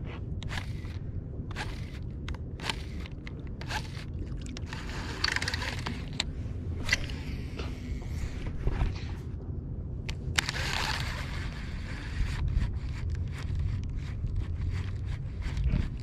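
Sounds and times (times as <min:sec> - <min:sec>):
steady low rumble: 0:00.0 - 0:16.0
fishing reel clicking: 0:00.4 - 0:07.1, 0:10.4 - 0:16.0.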